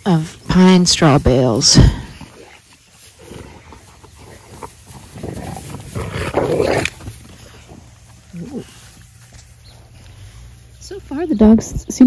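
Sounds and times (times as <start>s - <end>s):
dogs growling: 1.7s - 10.6s.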